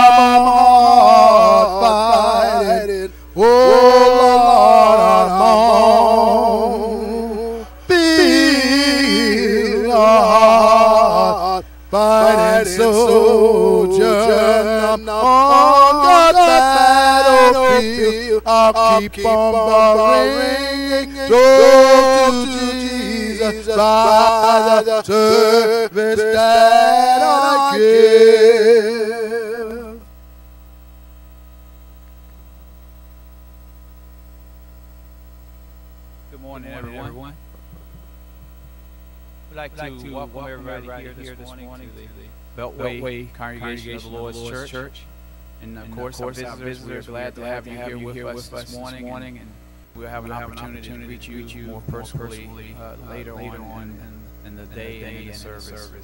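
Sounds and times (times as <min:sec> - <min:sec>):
man singing with vibrato: 0:00.0 - 0:30.1
faint electrical hum: 0:00.0 - 0:56.0.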